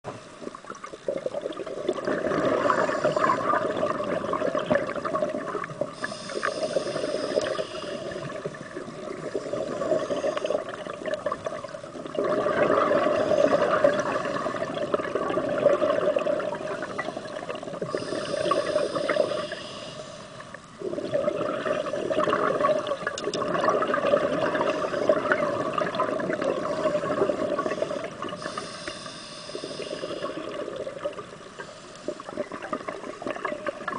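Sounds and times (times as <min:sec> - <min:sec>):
bubbling exhale underwater: 0:00.6 - 0:19.6, 0:20.8 - 0:31.5, 0:32.1 - 0:33.9
hissing inhale through regulator: 0:02.4 - 0:03.9, 0:05.8 - 0:11.0, 0:12.8 - 0:14.8, 0:16.4 - 0:21.1, 0:24.6 - 0:25.8, 0:26.4 - 0:32.7.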